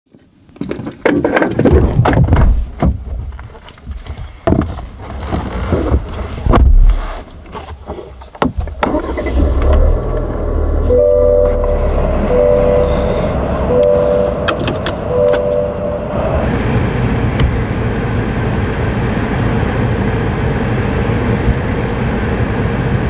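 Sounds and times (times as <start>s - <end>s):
engine and road rumble: 0.1s - 23.0s
knocks and clicks in car: 8.2s - 8.9s, 13.7s - 15.9s, 17.3s - 17.6s
two-note chime: 10.9s - 16.1s.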